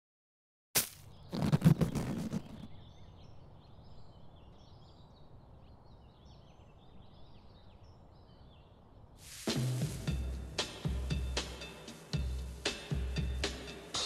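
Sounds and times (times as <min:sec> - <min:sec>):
outdoor ambience: 0:00.8 - 0:14.0
small birds chirping: 0:01.0 - 0:09.2.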